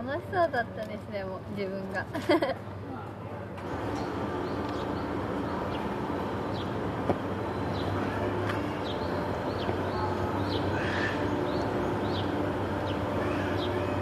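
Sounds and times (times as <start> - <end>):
low machine hum: 0.0 - 14.0
small birds chirping: 3.9 - 6.8, 7.5 - 14.0.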